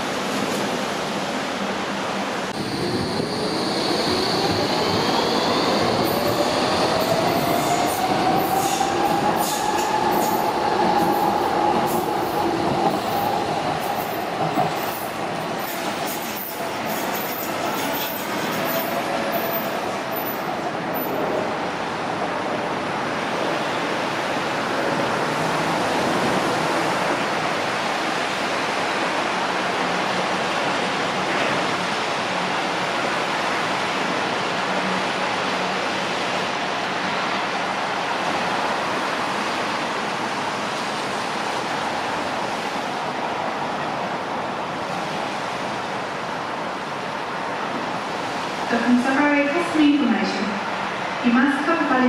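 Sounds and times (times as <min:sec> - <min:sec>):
train wheels rumbling on rail: 0:02.5 - 0:28.4.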